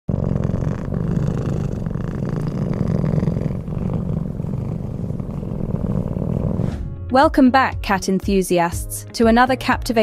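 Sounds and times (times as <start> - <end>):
cat purring: 0.1 - 6.8.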